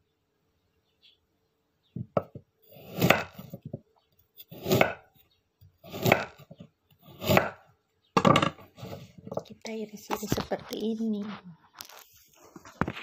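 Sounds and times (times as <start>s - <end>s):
knife slicing vegetable: 2.7s - 3.7s, 4.4s - 5.2s, 5.8s - 7.6s.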